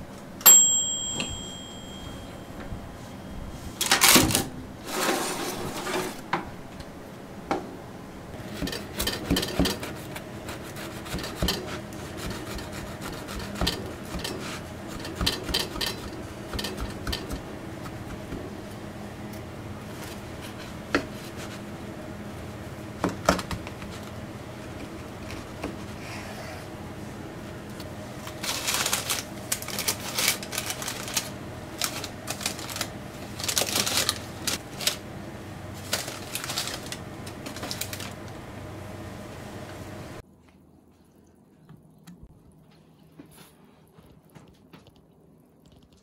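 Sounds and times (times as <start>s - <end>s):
toaster oven timer bell ding: 0.4s - 2.8s
bread knife sawing crusty loaf: 9.9s - 14.6s
bread crust crackling: 28.2s - 35.0s.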